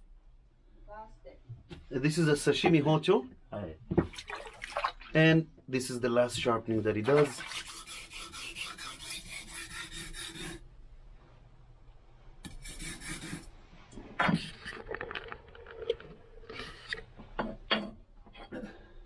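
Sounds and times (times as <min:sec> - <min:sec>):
knife rasping on whetstone: 0:07.4 - 0:10.6, 0:12.5 - 0:13.5.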